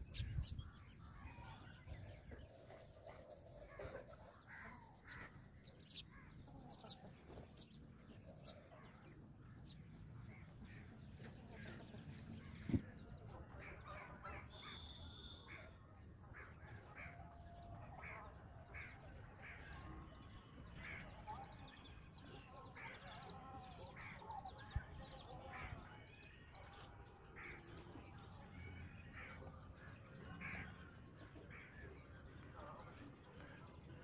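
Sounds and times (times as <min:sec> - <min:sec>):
sparrows chirping: 0:00.0 - 0:34.0.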